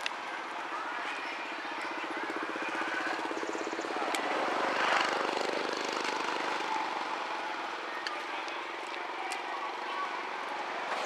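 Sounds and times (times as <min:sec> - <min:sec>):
motor passing by: 0:01.6 - 0:07.8.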